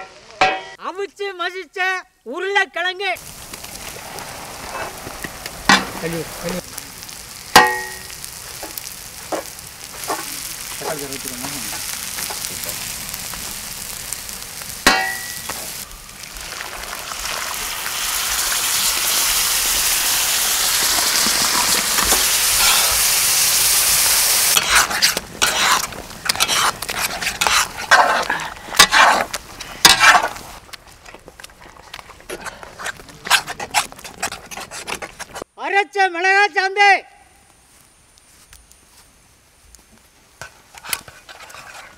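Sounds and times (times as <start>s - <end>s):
ringing metal clangs: 0.4s - 0.8s, 7.6s - 8.2s, 14.9s - 15.5s
vegetables sizzling on griddle: 3.2s - 31.0s
metal spatula scraping: 24.5s - 30.6s, 31.6s - 35.4s, 40.7s - 41.9s.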